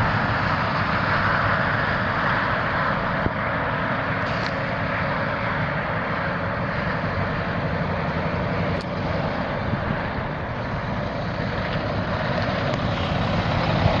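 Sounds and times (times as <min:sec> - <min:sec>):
diesel engine running: 0:00.0 - 0:14.0.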